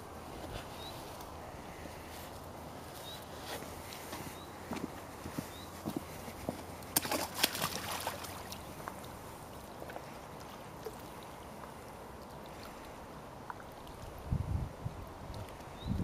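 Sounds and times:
water sloshing and trickling: 6.6 - 16.0
water splashing: 6.8 - 14.2.

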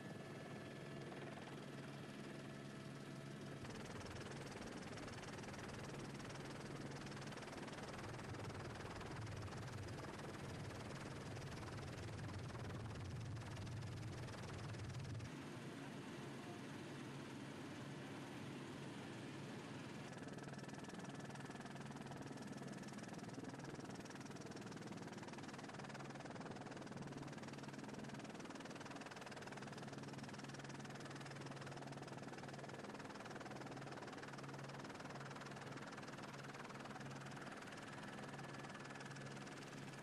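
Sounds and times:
helicopter engine and rotor drone: 0.0 - 40.0.

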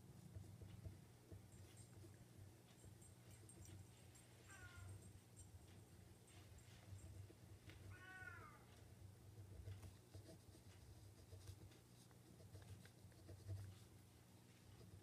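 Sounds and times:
cat meowing: 4.5 - 4.9, 7.9 - 8.7.

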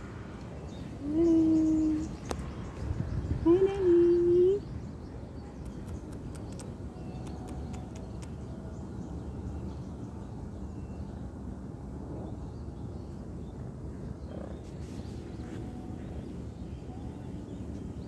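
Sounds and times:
faint sharp clicks: 5.6 - 8.5.

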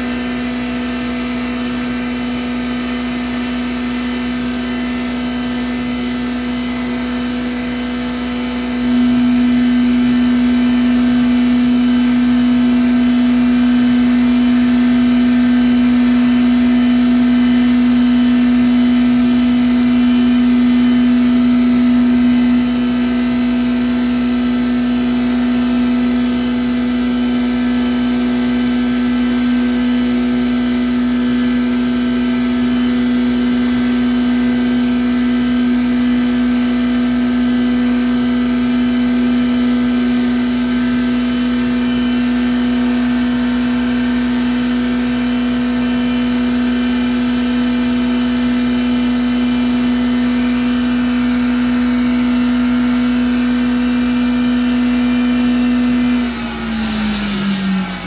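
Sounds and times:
husk grinder whining: 0.0 - 58.0.

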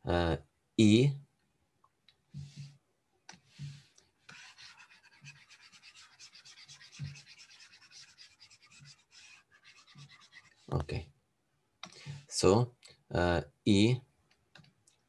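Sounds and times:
stylus scratching on drawing tablet: 3.5 - 10.9.

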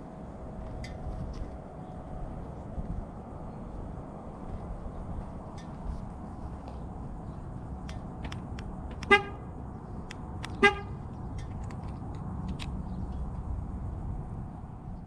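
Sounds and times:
low outdoor rumble: 0.0 - 15.0
car horn chirps: 9.0 - 9.6, 10.5 - 11.0
light clicks: 10.0 - 13.4.

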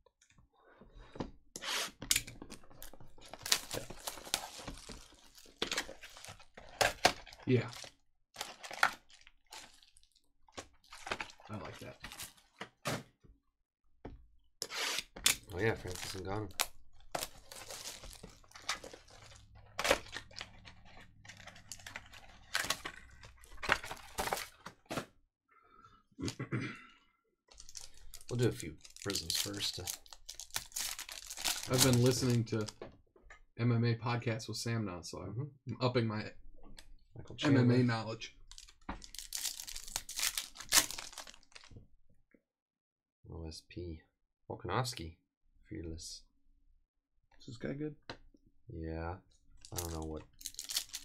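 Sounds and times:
packaging tearing: 2.1 - 10.1, 10.8 - 12.6, 14.8 - 24.5, 27.5 - 32.7, 38.5 - 41.7, 49.7 - 51.0
wrapping crinkling and crackling: 2.2 - 12.8, 15.2 - 24.6, 27.5 - 32.8, 38.4 - 41.8, 49.6 - 51.0.

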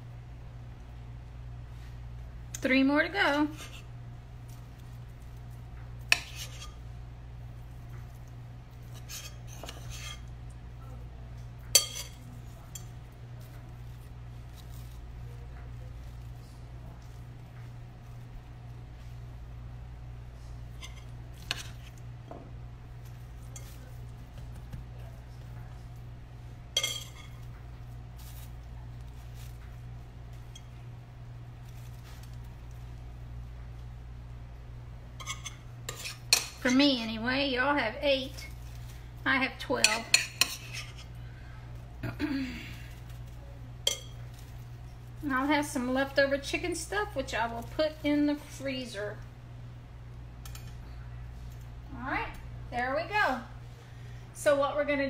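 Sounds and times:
steady low hum: 0.0 - 55.0
tortilla handling noise: 3.5 - 34.5, 38.3 - 39.2, 40.1 - 45.3
metal spoon scraping a bowl: 6.1 - 6.8, 8.9 - 10.3, 35.2 - 36.8, 39.8 - 41.1
metal spoon clinking bowl: 11.7 - 12.9, 26.8 - 27.4, 43.8 - 44.2.

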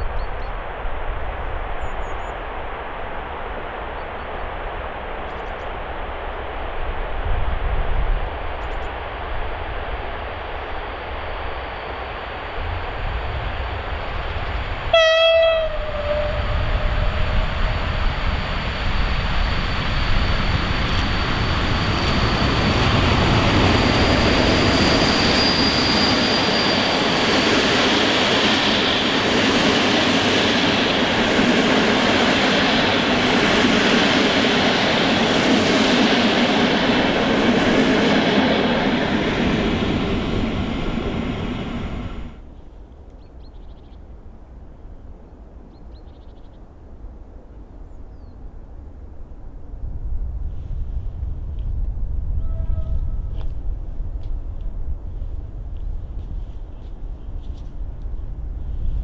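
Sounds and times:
train wheels rolling on rail: 0.1 - 42.6, 50.3 - 59.0
locomotive horn blast: 14.9 - 17.6, 52.4 - 53.4.

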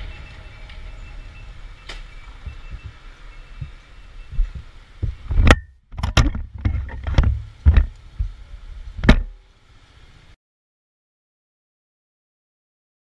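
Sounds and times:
sharp knocks and thumps: 4.4 - 8.4, 9.0 - 9.3.

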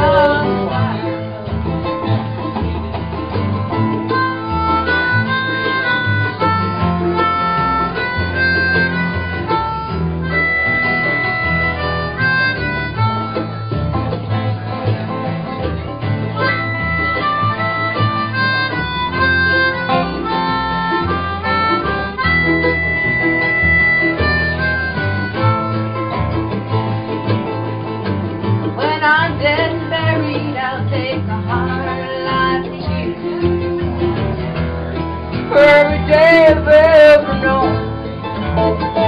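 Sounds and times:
lead melody of held notes: 0.0 - 28.8
low bass line: 0.0 - 39.0
strummed acoustic guitars: 0.0 - 39.0.

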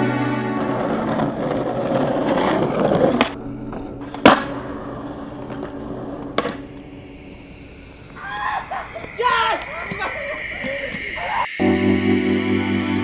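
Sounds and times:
skateboard wheels rolling: 0.3 - 11.5
skateboard clacking on ground: 0.6 - 6.9
skateboard click: 0.6 - 6.9.

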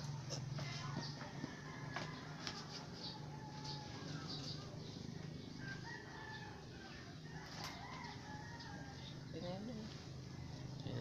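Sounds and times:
rooster crowing: 0.7 - 4.5, 5.6 - 9.3.

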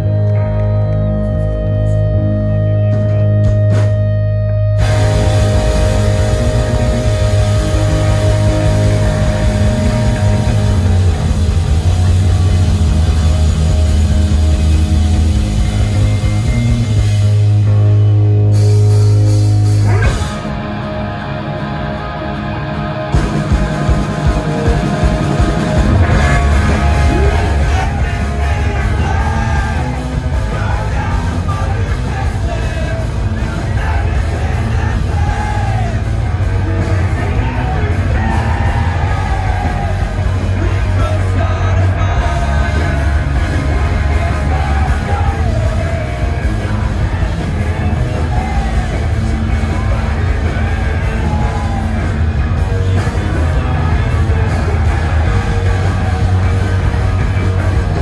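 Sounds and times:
bass guitar: 0.0 - 58.0
distorted electric guitars: 0.0 - 58.0
drum kit: 2.8 - 4.2, 4.8 - 58.0
person singing and yelling: 25.8 - 58.0.

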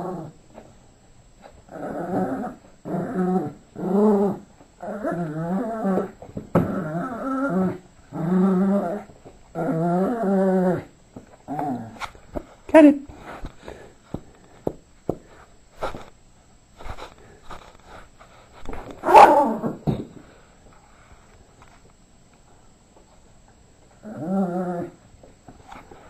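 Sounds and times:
dog play-growling: 0.0 - 0.4, 1.4 - 12.4, 23.9 - 25.0.

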